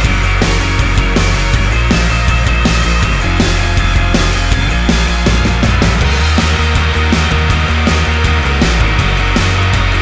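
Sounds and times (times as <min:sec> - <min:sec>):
heavy bass: 0:00.0 - 0:10.0
loud rock music: 0:00.0 - 0:10.0
steady drum beat: 0:00.0 - 0:10.0.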